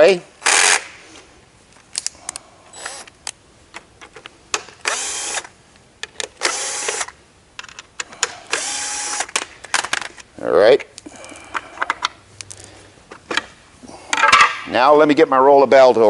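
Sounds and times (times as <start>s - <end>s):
cordless drill running: 0.5s - 0.8s, 2.8s - 3.1s, 4.8s - 5.5s, 6.4s - 7.2s, 8.5s - 9.4s
clicks and knocks of screws: 6.0s - 10.3s.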